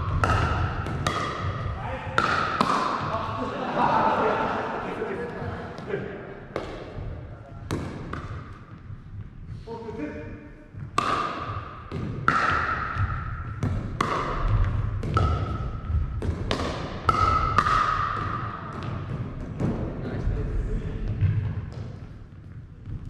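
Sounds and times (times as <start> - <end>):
paddles striking plastic ball: 0.1 - 3.1, 10.8 - 19.8.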